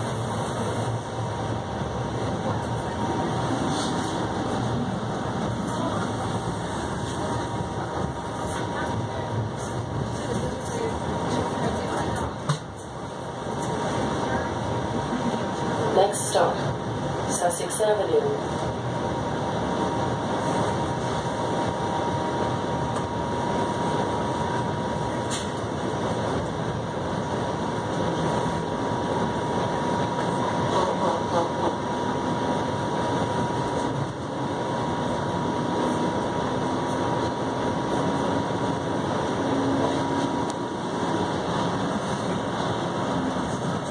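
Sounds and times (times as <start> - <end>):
streetcar rumbling: 0.0 - 43.9.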